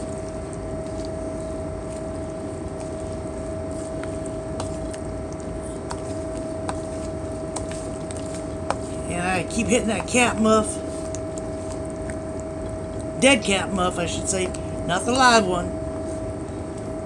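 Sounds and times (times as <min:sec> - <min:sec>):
spoon stirring thick beans: 0:00.0 - 0:12.2
engine drone and whine: 0:00.0 - 0:17.0.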